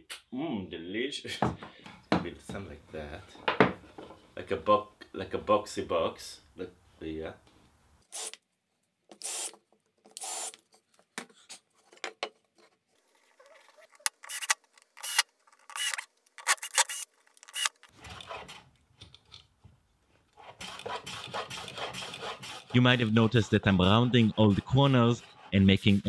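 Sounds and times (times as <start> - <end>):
cordless drill driving screws: 9.2 - 9.6, 10.2 - 10.6, 13.8 - 18.6
wood rasp scraping: 20.3 - 26.0.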